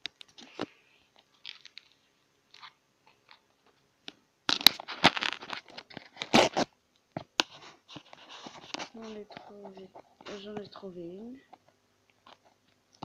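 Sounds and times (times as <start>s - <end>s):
foil wrapper crinkling: 0.2s - 3.4s, 4.5s - 6.7s.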